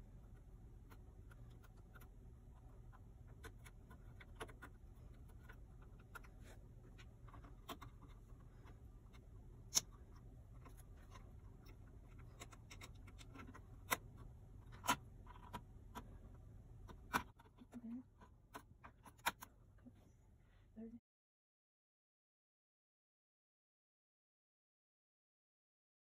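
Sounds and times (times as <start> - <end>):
low steady hum: 0.0 - 21.0
connectors clicking into place: 3.3 - 16.2.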